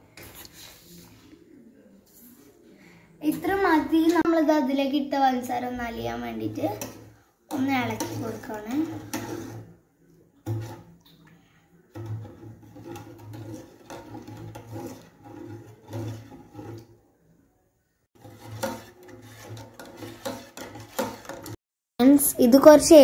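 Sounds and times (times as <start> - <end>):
metal spoon scraping saucepan: 6.3 - 9.8, 10.4 - 11.0, 11.9 - 17.0, 18.2 - 21.6.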